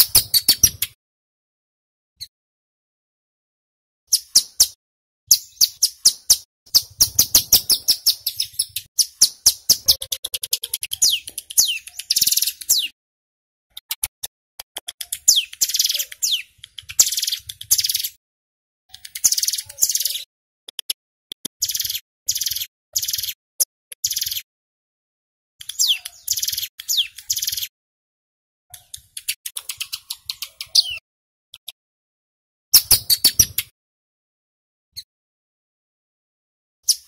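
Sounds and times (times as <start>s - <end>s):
bird singing sharp notes: 25.7s - 27.7s.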